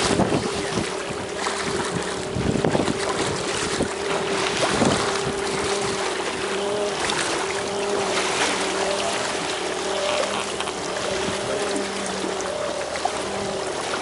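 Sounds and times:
boat engine running: 0.0s - 14.0s
wind and sea water hiss: 0.0s - 14.0s.

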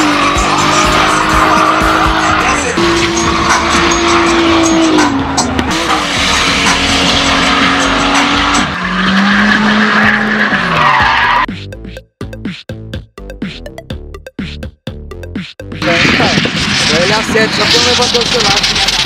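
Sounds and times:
car engine at high revs: 0.0s - 11.5s, 15.8s - 19.0s
tyres squealing: 0.0s - 11.5s
rhythmic music beat: 0.0s - 16.8s.

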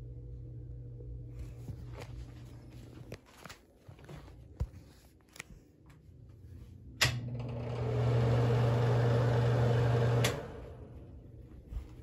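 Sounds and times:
exhaust fan motor hum: 5.8s - 12.0s.

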